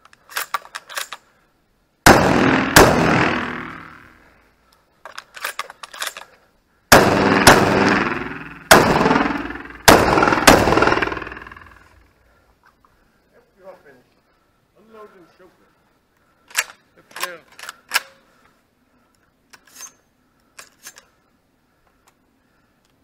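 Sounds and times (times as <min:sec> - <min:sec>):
shells loaded with metallic clicks: 0:00.0 - 0:01.3, 0:05.0 - 0:06.4, 0:16.5 - 0:18.2, 0:19.5 - 0:21.2
shotgun shots echoing: 0:02.1 - 0:04.2, 0:06.9 - 0:12.0.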